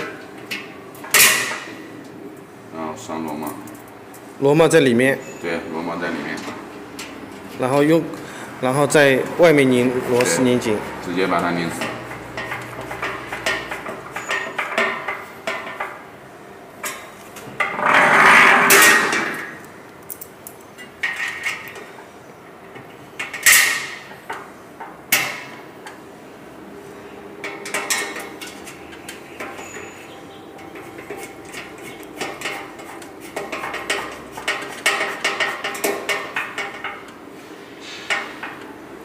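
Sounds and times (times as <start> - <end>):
metal knocking on steel drum: 11.3 - 16.0, 27.4 - 37.1
metallic clatter: 11.6 - 16.0, 27.4 - 37.2.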